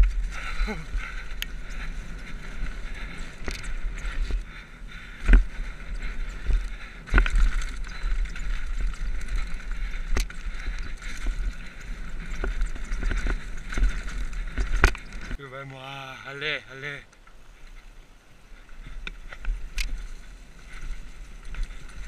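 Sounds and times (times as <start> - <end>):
wind rumble on microphone: 0.0 - 15.4
bike tyres on dirt: 0.0 - 22.0
bike knocks and rattles: 5.1 - 15.4.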